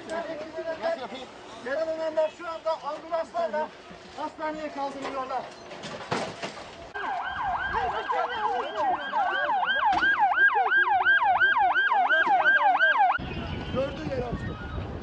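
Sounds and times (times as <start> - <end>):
siren yelping: 7.0 - 13.2.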